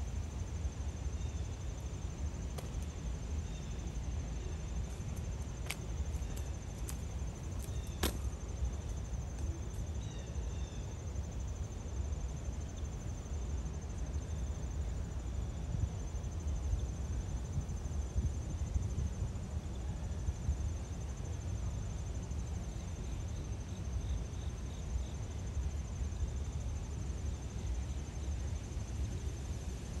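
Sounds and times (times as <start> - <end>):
insects trilling: 0.0 - 18.9.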